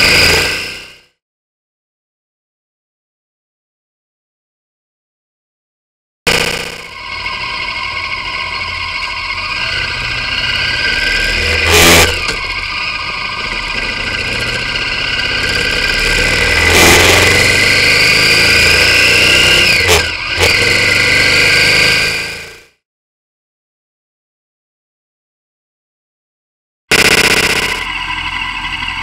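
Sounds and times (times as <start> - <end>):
motorcycle engine accelerating: 6.3 - 22.8, 26.9 - 29.0.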